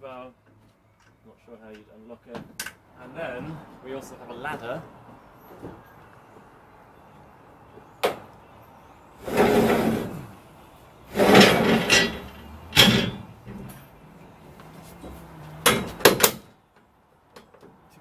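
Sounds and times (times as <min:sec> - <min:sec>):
metal ladder scraping on rack: 0:09.2 - 0:10.3, 0:11.1 - 0:13.7
metal ladder clanking: 0:11.2 - 0:13.8.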